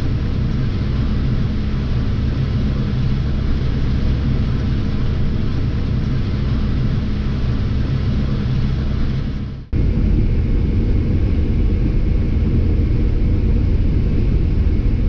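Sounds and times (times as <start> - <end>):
tractor engine droning: 9.8 - 15.0.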